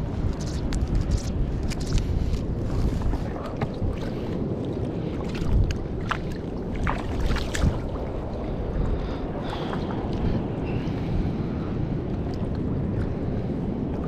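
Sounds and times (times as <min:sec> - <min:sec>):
wind buffeting microphone: 0:00.0 - 0:14.0
sharp clicks and rustles: 0:00.2 - 0:02.4.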